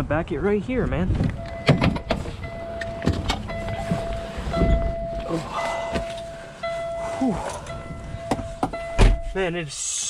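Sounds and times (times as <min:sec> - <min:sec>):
knocks and rustling: 0:01.1 - 0:05.0
truck warning chime: 0:01.4 - 0:09.8.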